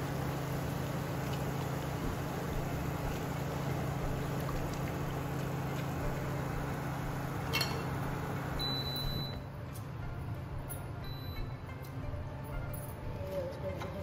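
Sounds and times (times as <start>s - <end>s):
hot oil sizzling and bubbling: 0.0s - 9.3s
steady low hum: 0.0s - 13.2s.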